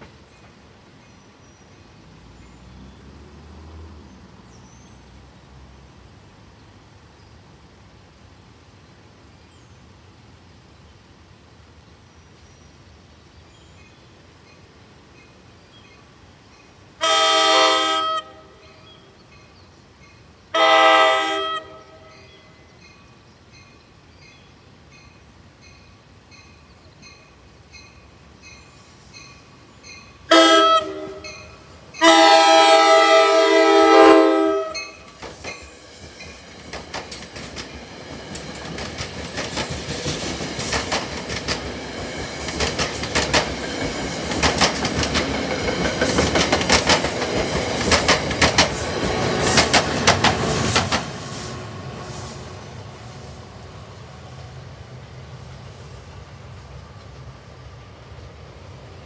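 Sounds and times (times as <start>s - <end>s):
train wheels on rails: 0.0s - 4.4s, 18.8s - 59.0s
train horn blasts: 17.0s - 19.1s, 20.5s - 22.6s, 30.3s - 35.1s
crossing bell dinging: 25.7s - 32.5s, 34.6s - 36.4s.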